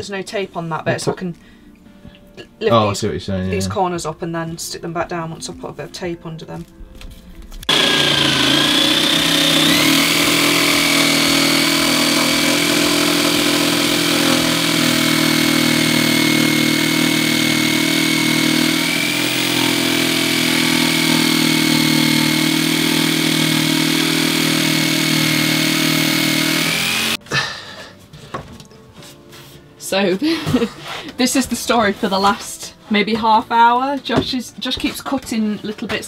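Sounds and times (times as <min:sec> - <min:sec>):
jigsaw cutting wood: 0:07.7 - 0:27.2.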